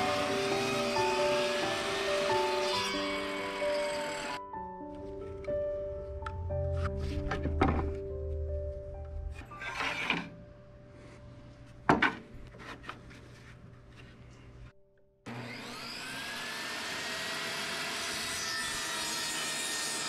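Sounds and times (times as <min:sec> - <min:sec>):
table saw motor whine: 0:00.0 - 0:04.4, 0:15.3 - 0:20.0.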